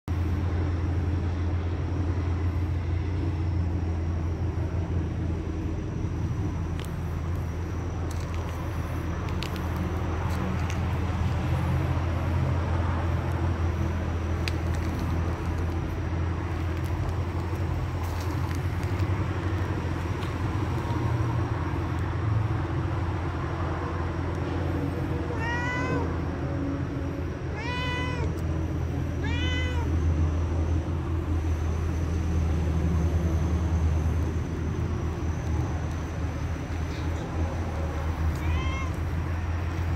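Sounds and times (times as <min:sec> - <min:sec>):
steady low hum: 0:00.1 - 0:25.4, 0:26.0 - 0:39.9
cat meowing: 0:25.3 - 0:26.1, 0:27.5 - 0:28.4, 0:29.2 - 0:30.0, 0:38.2 - 0:39.3.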